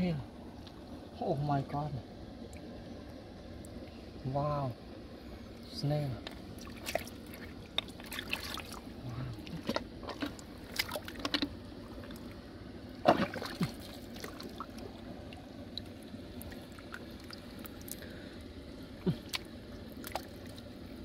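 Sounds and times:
squelching through wet mud: 6.6 - 11.4.

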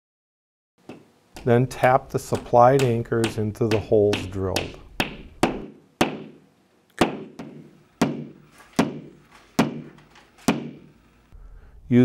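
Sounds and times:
hammer tapping wall anchor: 0.8 - 6.4, 7.0 - 10.9.

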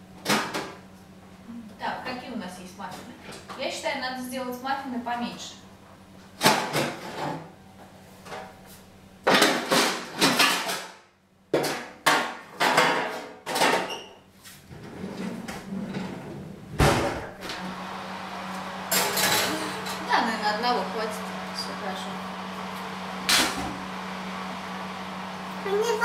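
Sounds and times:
oven trays and racks clattering: 9.3 - 11.0, 11.6 - 14.1.

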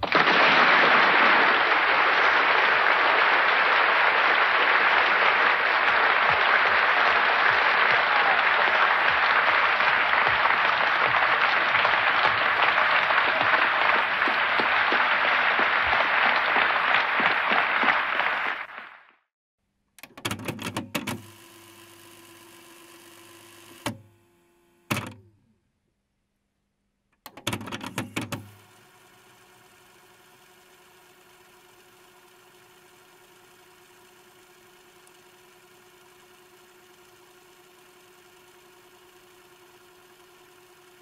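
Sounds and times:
large audience applauding: 0.0 - 19.2.

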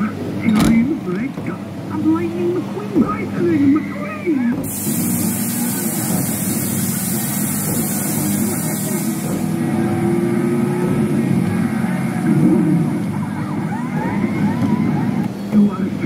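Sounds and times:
steady machine hum: 0.0 - 16.0
car engine sound effects: 4.8 - 15.4.

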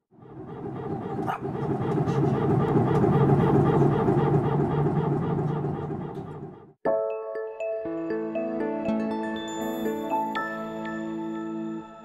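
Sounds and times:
low hum: 0.0 - 6.8
rapidly pulsing hydraulic growl: 0.0 - 6.8.

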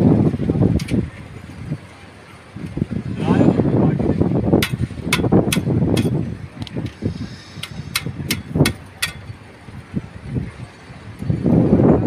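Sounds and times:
low uneven rumble: 0.0 - 12.0
trowel clinking on metal bars: 4.6 - 6.2, 7.6 - 9.4.

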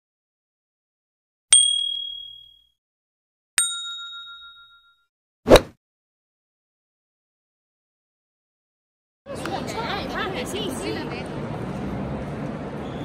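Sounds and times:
high bell-like ding: 1.5 - 2.7, 3.6 - 5.1
lower chord ding: 1.6 - 2.6.

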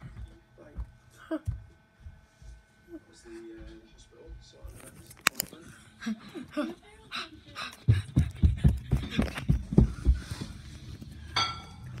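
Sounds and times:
rapid heavy panting: 5.8 - 10.9.

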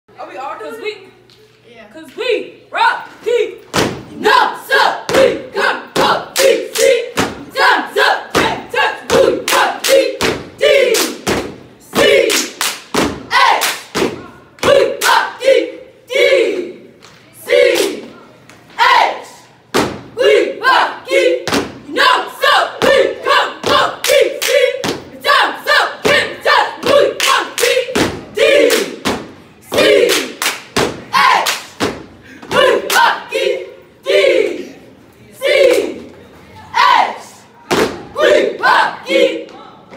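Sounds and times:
cheerleaders shouting in unison: 2.7 - 11.2, 13.3 - 18.1, 18.8 - 19.5, 20.2 - 29.0, 31.0 - 34.8, 35.4 - 39.6
rhythmic stomps: 3.6 - 15.3, 19.6 - 20.4, 21.2 - 33.2, 37.7 - 38.8
rhythmic clapping: 5.1 - 7.6, 8.3 - 15.4, 17.0 - 18.1, 22.8 - 33.3
people shouting a cheer in unison: 13.3 - 16.7, 31.1 - 31.6, 38.2 - 39.4.

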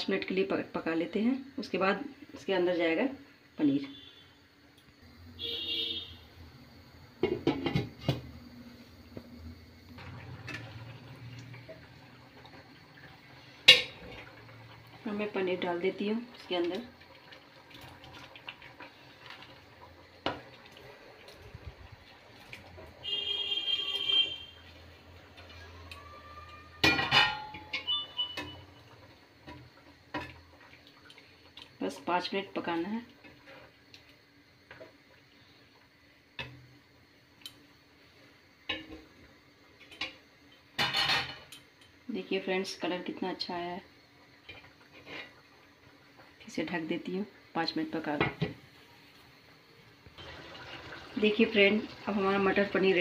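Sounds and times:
glass lid clinking on a pan: 26.8 - 28.5.

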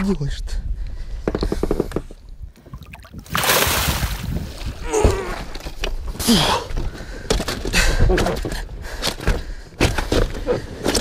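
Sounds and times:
fish splashing in net: 3.2 - 4.3.

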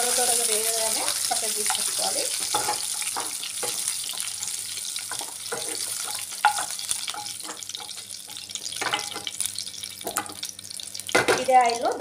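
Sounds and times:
oil sizzling in a pan: 0.0 - 12.0
spatula scraping and knocking pan: 1.4 - 9.4.

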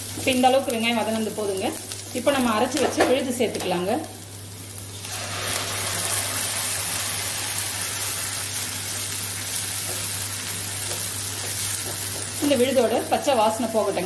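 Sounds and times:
paste sizzling in hot oil: 4.2 - 13.2.

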